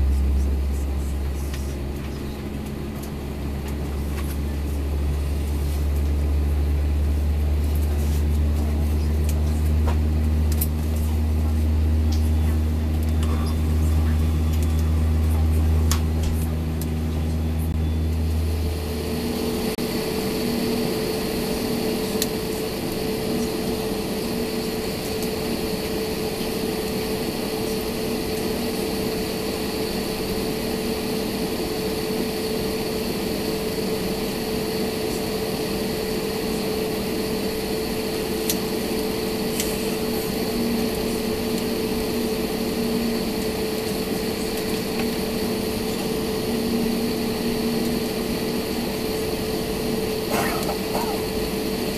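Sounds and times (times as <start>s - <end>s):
deep low hum: 0.0s - 19.8s
airplane cabin drone: 0.0s - 51.9s
faint high whine: 11.9s - 51.9s.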